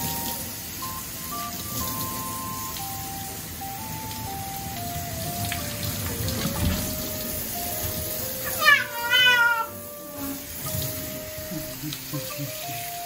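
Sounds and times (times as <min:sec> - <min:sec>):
light background music: 0:00.0 - 0:13.0
shower spray running: 0:00.0 - 0:13.0
cat yowling: 0:08.4 - 0:10.4.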